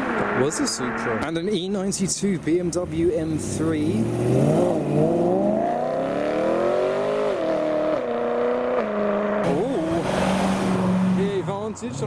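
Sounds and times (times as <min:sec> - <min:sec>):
car engine accelerating hard: 0:02.7 - 0:11.7.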